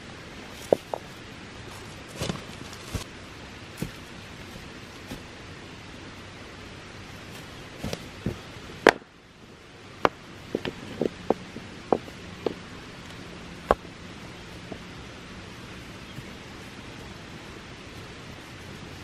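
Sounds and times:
stones knocking together: 0:10.0 - 0:12.6.

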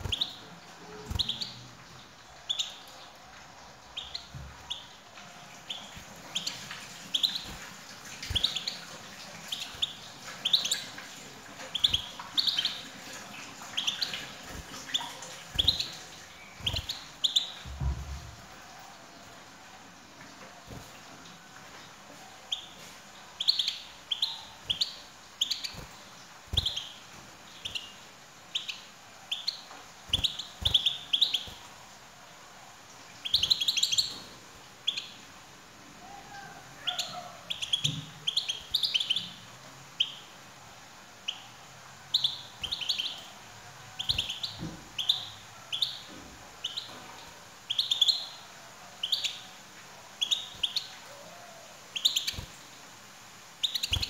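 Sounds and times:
goldfinch chirping: 0:00.0 - 0:01.6, 0:02.4 - 0:03.1, 0:03.8 - 0:05.0, 0:05.6 - 0:17.9, 0:22.5 - 0:22.8, 0:23.4 - 0:31.7, 0:33.2 - 0:35.2, 0:36.8 - 0:39.4, 0:42.1 - 0:43.4, 0:44.0 - 0:47.0, 0:47.7 - 0:48.4, 0:49.0 - 0:49.5, 0:50.2 - 0:51.1, 0:51.9 - 0:52.6, 0:53.6 - 0:54.0.

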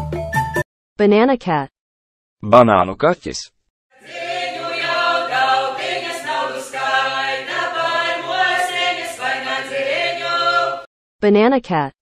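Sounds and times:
choir singing held notes: 0:04.0 - 0:10.9.

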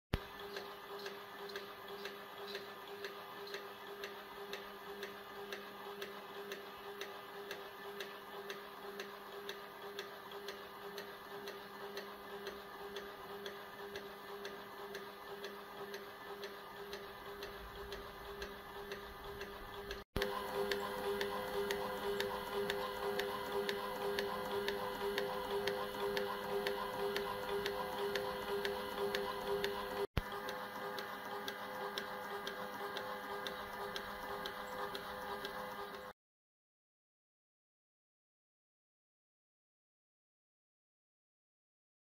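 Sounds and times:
motor hum: 0:00.1 - 0:36.2
film scanner mechanical clicking: 0:00.2 - 0:36.1.

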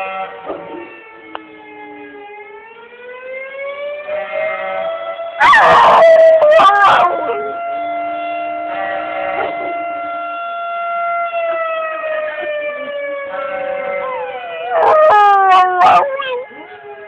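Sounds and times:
warning siren falling tone: 0:00.0 - 0:17.0
dog howling: 0:05.4 - 0:07.6, 0:12.8 - 0:16.8.

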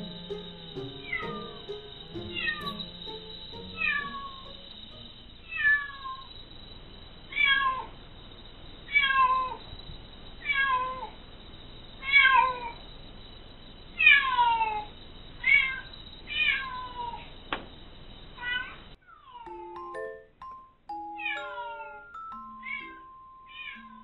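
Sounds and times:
cat meowing: 0:03.8 - 0:04.4, 0:23.5 - 0:24.0.

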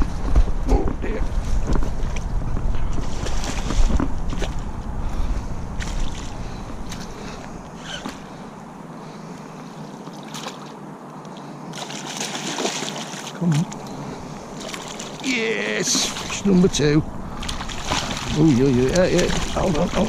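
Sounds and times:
wind rumbling on microphone: 0:00.0 - 0:08.7
fish thrashing and splashing: 0:11.7 - 0:20.0.

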